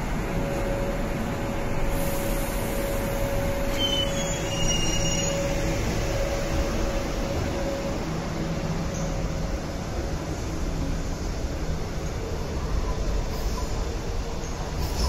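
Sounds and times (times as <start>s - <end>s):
train hum: 0.0s - 15.0s
wheel squeals: 3.7s - 5.5s.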